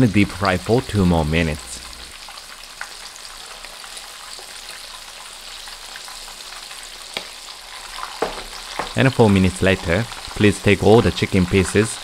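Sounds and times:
chicken deep-frying in oil: 0.0s - 12.0s
sharp oil pop: 7.2s - 7.4s.

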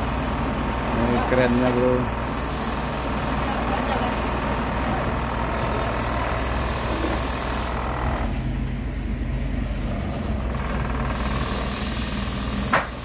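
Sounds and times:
truck diesel engine idling: 0.0s - 13.0s
hiss: 1.2s - 8.0s, 11.0s - 13.0s.

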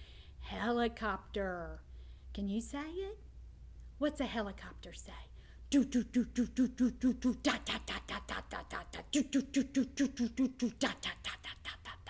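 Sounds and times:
woman imitating a helicopter: 5.8s - 12.0s.

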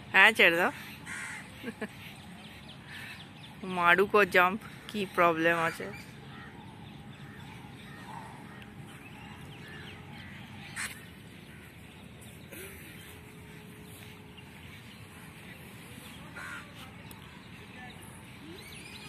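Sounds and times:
steady low hum: 0.0s - 19.0s
faint bird calls: 5.6s - 19.0s.

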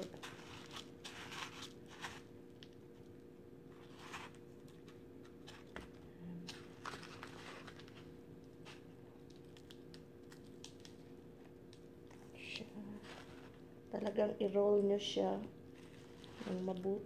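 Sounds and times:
breadcrumbs rustling in plastic bowl: 0.0s - 11.8s, 12.4s - 13.7s, 15.7s - 17.0s.

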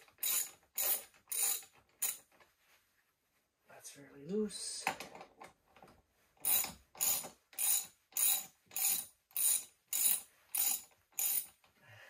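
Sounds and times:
ratchet wrench clicking: 0.1s - 2.2s, 6.4s - 11.6s.

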